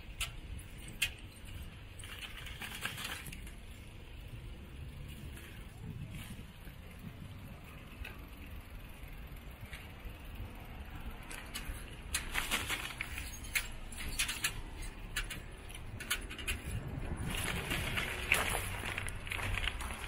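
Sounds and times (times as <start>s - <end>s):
light clicks and rattles: 11.0s - 20.0s.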